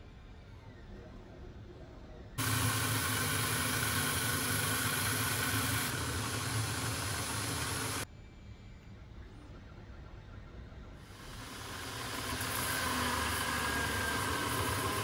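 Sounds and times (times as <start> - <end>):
power drill motor: 2.4 - 8.0, 11.2 - 15.0
sanding disc hissing on metal: 2.4 - 8.0, 11.2 - 15.0.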